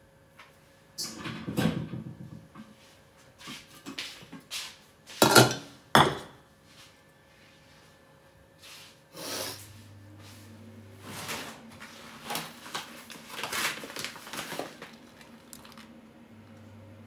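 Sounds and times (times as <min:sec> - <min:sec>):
plastic bag rustling: 0:11.0 - 0:16.0.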